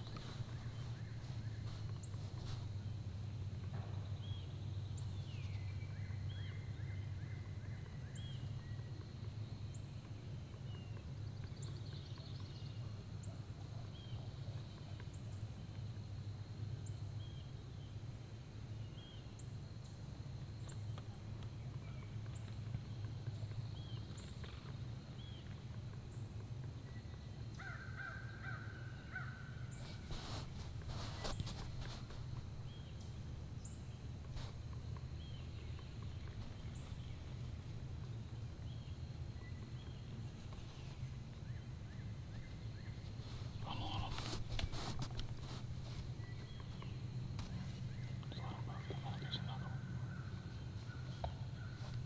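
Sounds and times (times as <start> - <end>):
steady low hum: 0.0 - 52.0
small bird chirping: 29.7 - 52.0
harsh buzzy bird calls: 42.4 - 47.0, 47.6 - 52.0.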